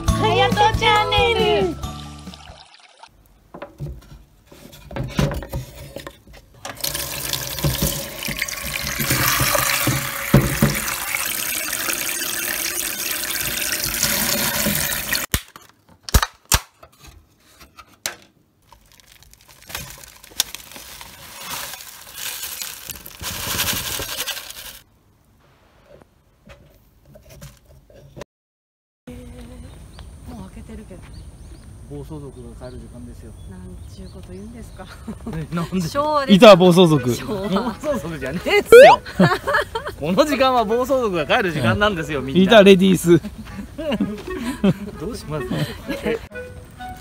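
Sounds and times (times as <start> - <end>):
tap water running into sink: 6.7 - 15.3.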